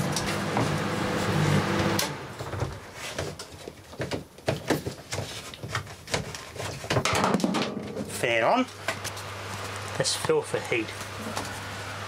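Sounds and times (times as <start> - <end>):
microwave oven humming: 0.0 - 2.7, 10.9 - 12.0.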